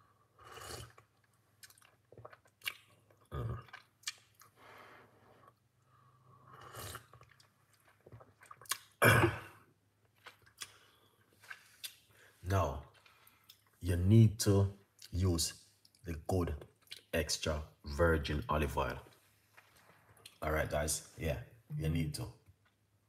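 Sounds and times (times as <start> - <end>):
person sipping and swallowing: 0.4 - 4.6, 5.4 - 12.1.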